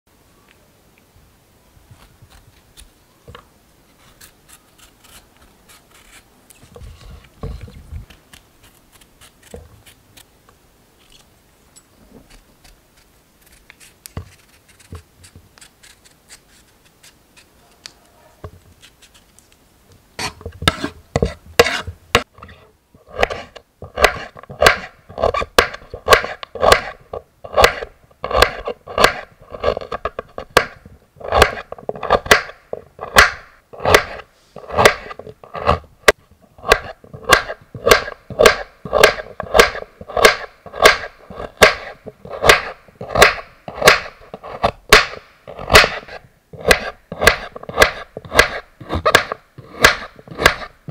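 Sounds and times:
knife scraping carrot skin: 0:04.0 - 0:07.4, 0:08.0 - 0:10.3, 0:12.2 - 0:18.0, 0:18.7 - 0:19.4, 0:20.2 - 0:30.4, 0:31.2 - 0:33.2, 0:36.6 - 0:44.8, 0:45.5 - 0:50.8.

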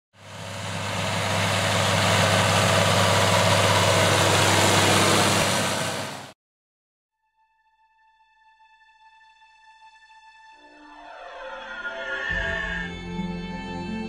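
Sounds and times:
tractor engine humming: 0:00.2 - 0:06.4.

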